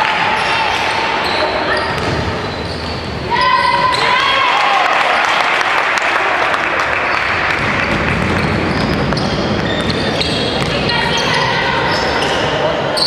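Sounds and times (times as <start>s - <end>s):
spectators applauding: 4.3s - 9.0s.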